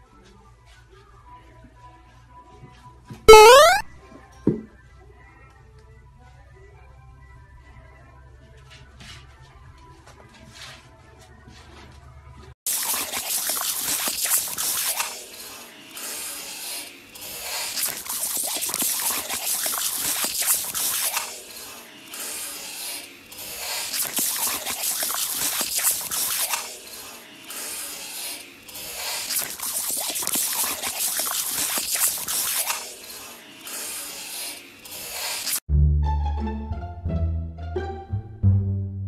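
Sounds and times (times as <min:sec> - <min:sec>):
dog biting and lapping water: 0:12.7 - 0:16.1, 0:17.2 - 0:22.3, 0:23.3 - 0:35.6
water spraying from hose nozzle: 0:12.7 - 0:35.7.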